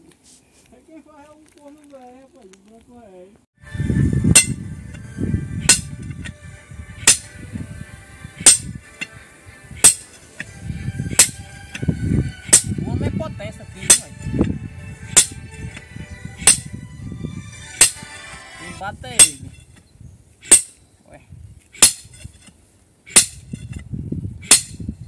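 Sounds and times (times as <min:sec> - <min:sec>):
sledgehammer clinking on steel bar: 0:08.4 - 0:08.7, 0:09.8 - 0:10.2, 0:11.1 - 0:11.4, 0:15.1 - 0:15.3, 0:16.4 - 0:16.7, 0:19.2 - 0:19.6.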